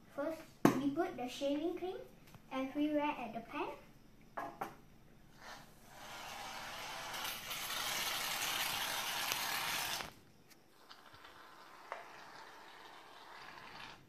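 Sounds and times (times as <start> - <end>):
aerosol can spraying foam: 5.4 - 10.1.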